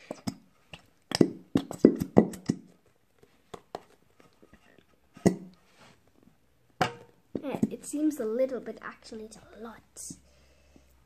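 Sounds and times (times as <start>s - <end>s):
glue squelching from a bottle: 0.0s - 2.8s.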